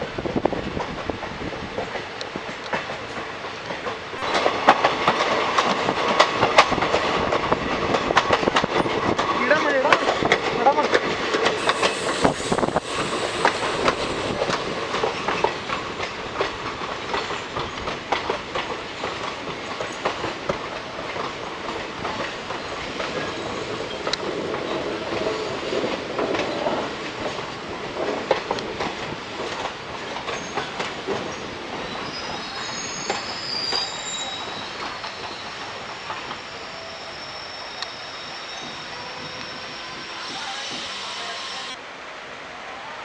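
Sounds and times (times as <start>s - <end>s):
train wheels clattering over rails: 0.1s - 36.5s
high wheel squeal: 11.6s - 14.2s, 30.4s - 41.8s.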